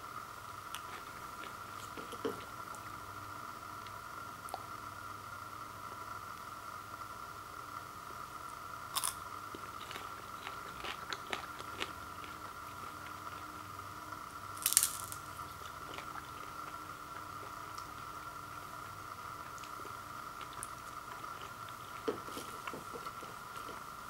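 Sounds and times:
faint hum: 0:00.0 - 0:24.0
popcorn crunching: 0:08.9 - 0:13.5, 0:14.5 - 0:24.0
small crackles: 0:14.6 - 0:18.6.

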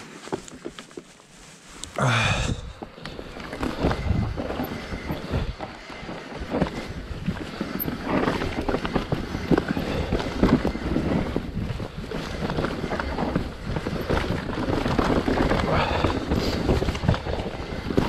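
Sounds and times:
bike knocking and rattling: 0:00.0 - 0:01.4, 0:02.1 - 0:18.0
bike tyres on dirt trail: 0:00.0 - 0:18.0
wind buffeting microphone: 0:03.6 - 0:18.0.

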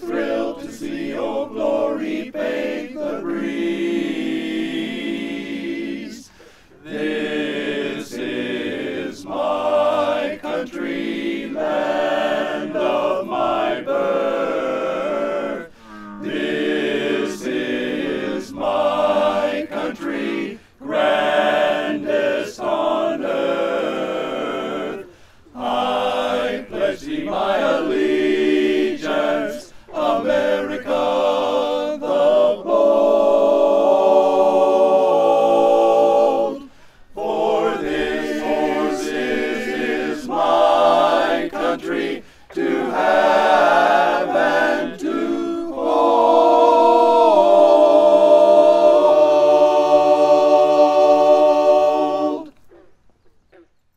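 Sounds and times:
men's chorus singing a cappella: 0:00.0 - 0:52.6.

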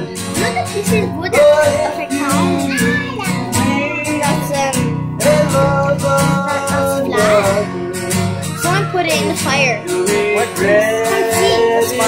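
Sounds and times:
acoustic guitar strumming: 0:00.0 - 0:12.0
man singing: 0:00.0 - 0:12.0.

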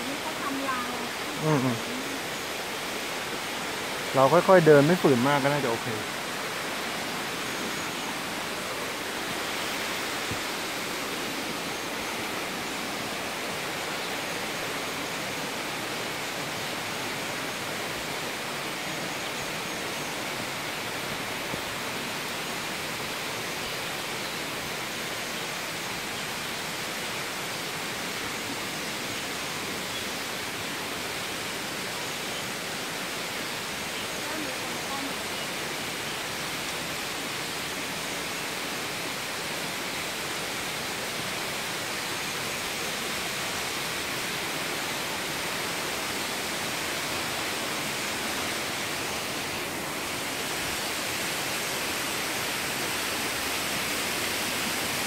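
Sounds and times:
waterfall roaring: 0:00.0 - 0:55.0.

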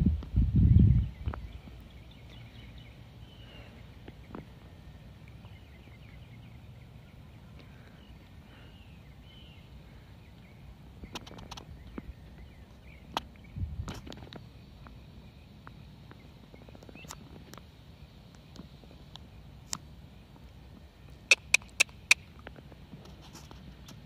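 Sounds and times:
sharp clicks: 0:21.3 - 0:22.5.

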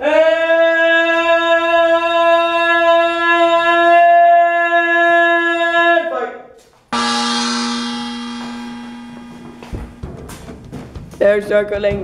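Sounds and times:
buzzy wind instrument note: 0:07.0 - 0:10.5.

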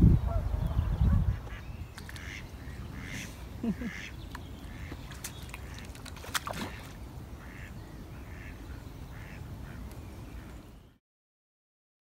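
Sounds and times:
wind rumble on microphone: 0:00.0 - 0:02.9
waterfowl calling: 0:01.2 - 0:10.6
water splash: 0:04.9 - 0:07.0.

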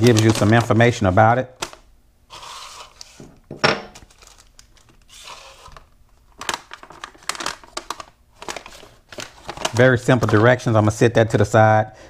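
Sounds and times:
paper rustling: 0:00.0 - 0:01.0, 0:04.0 - 0:10.7.

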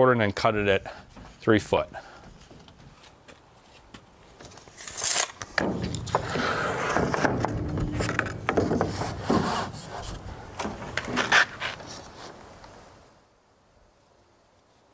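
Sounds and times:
wooden board knocks: 0:05.6 - 0:09.5
board scraping across saw table: 0:05.6 - 0:12.2.

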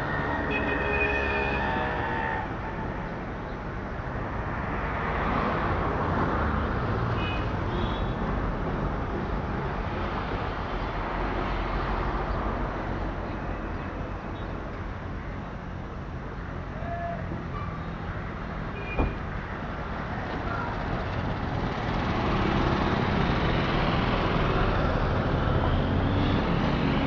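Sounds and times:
moving train rumbling rush: 0:00.0 - 0:03.4, 0:19.0 - 0:27.0.

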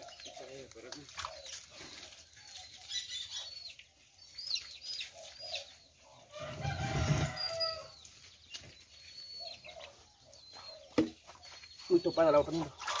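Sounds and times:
chicks peeping: 0:00.0 - 0:13.0
rooster crowing: 0:06.3 - 0:08.0.

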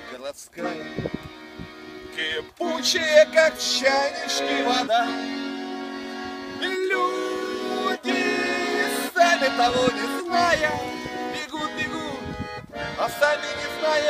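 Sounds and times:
button accordion chords: 0:00.0 - 0:14.0
man singing: 0:00.6 - 0:01.1, 0:02.1 - 0:05.4, 0:06.6 - 0:12.3, 0:13.0 - 0:14.0.

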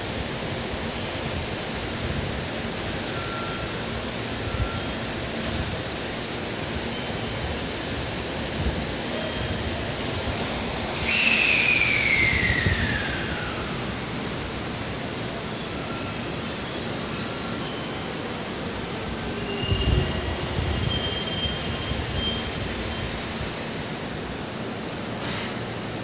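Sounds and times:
station background noise: 0:00.0 - 0:26.0.

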